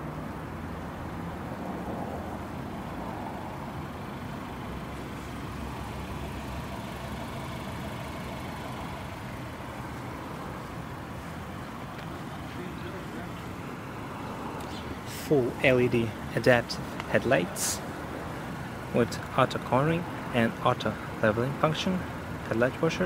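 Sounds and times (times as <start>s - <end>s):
car engine idling: 0.0s - 23.0s.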